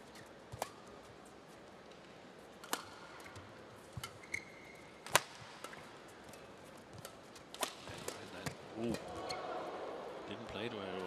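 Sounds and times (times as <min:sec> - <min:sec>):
racket hitting shuttlecock: 0:00.1 - 0:01.1, 0:02.6 - 0:09.4
shoes squeaking on court: 0:02.9 - 0:05.4.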